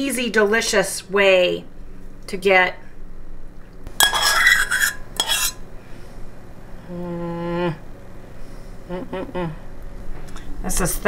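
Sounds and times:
metal spoon clinking on dishes: 0:04.0 - 0:05.6
person humming: 0:06.8 - 0:07.9, 0:08.8 - 0:09.7.

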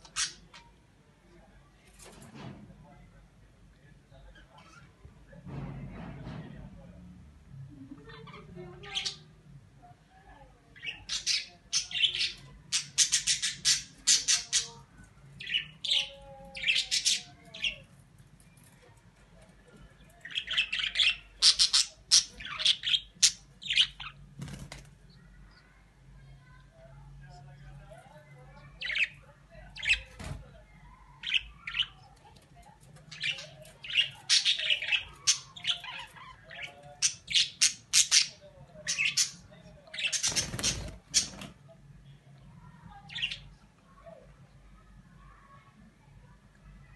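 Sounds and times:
parrot squawking and chirping: 0:20.2 - 0:24.2, 0:33.1 - 0:41.3
budgerigar chirping and squawking: 0:20.3 - 0:24.2.

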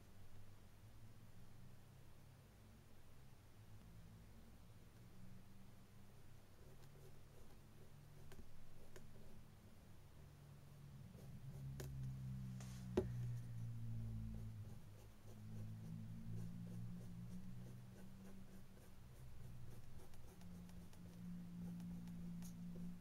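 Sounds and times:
low steady hum: 0:00.0 - 0:23.0
paintbrush strokes: 0:11.0 - 0:23.0.

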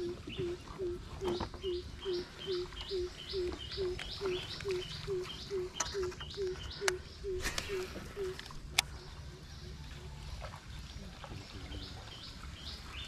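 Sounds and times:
bird short low hoots: 0:00.0 - 0:08.5.

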